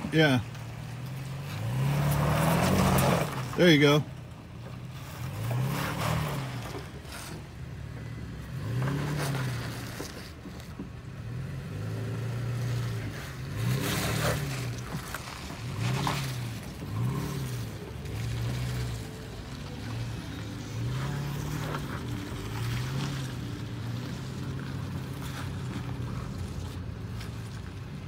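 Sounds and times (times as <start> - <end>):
truck engine revving: 0.0 - 28.0
tyres crunching over rock: 13.6 - 28.0.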